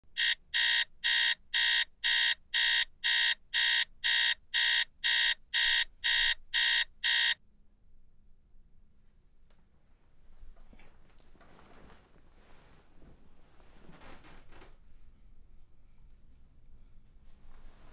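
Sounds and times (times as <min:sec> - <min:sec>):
alarm beeping: 0:00.1 - 0:07.4.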